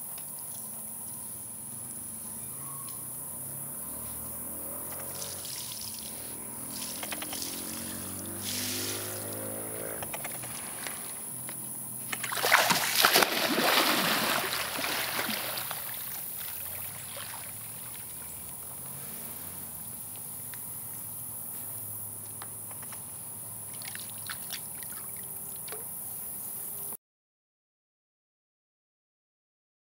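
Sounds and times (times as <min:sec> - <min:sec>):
water splashing and dripping: 0:05.0 - 0:09.4, 0:12.0 - 0:18.6, 0:23.7 - 0:25.9
animal plunging into pond: 0:12.0 - 0:18.1
churning water: 0:12.0 - 0:18.5.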